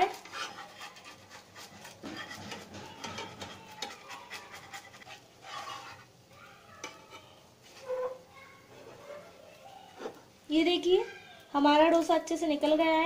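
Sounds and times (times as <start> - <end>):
spatula scraping a pan: 0.0 - 10.3.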